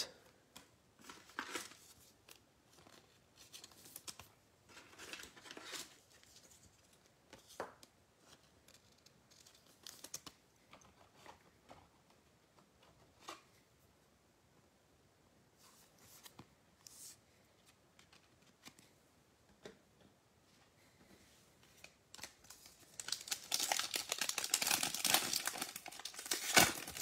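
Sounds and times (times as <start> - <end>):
rustling of trading cards: 0.5 - 13.7, 15.6 - 19.0, 20.9 - 27.0
foil card packs crinkling: 22.2 - 27.0.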